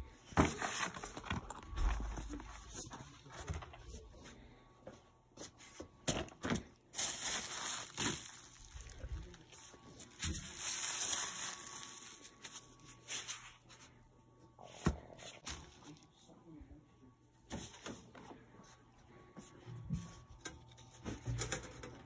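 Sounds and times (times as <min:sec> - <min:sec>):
bubble wrap crinkling: 0:06.9 - 0:13.6.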